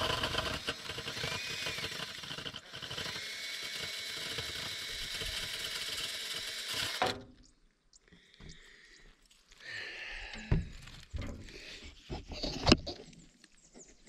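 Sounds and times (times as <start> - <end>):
cordless drill motor whine: 0.0 - 7.1.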